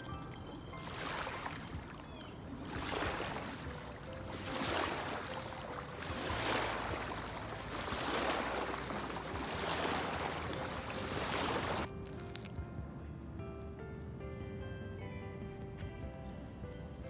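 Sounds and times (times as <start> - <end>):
waves washing onto gravel bank: 0.8 - 11.9.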